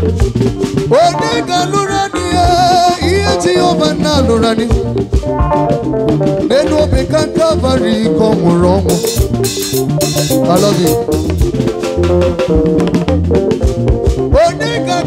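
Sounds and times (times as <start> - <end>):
drum kit: 0.0 - 15.0
electric bass line: 0.0 - 15.0.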